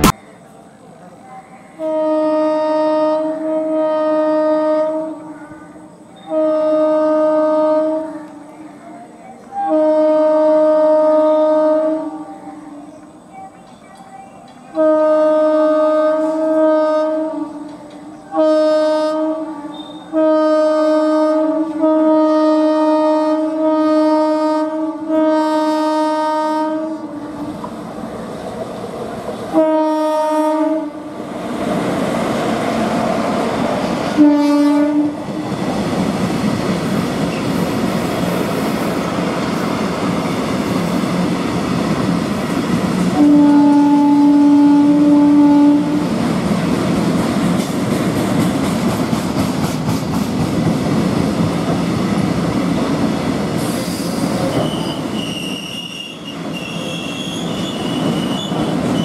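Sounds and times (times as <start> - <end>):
locomotive air horn blasts: 1.8 - 5.3, 6.2 - 8.1, 9.6 - 12.3, 14.8 - 17.7, 18.3 - 27.2, 29.5 - 31.1, 34.2 - 35.2, 43.1 - 46.0.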